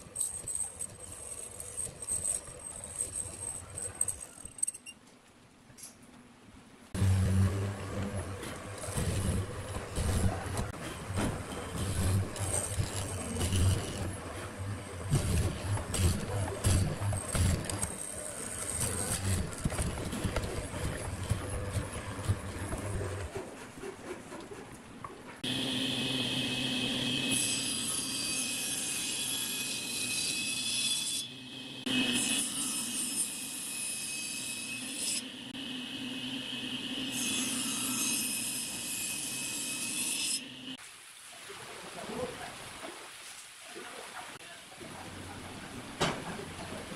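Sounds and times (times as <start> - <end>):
table saw cutting wood: 7.0 - 23.4, 25.4 - 40.8.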